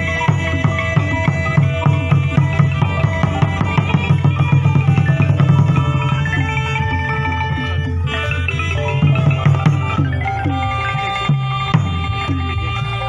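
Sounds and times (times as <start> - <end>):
quick dense drum strokes: 0.0 - 7.0
ringing pitched percussion: 0.0 - 13.0.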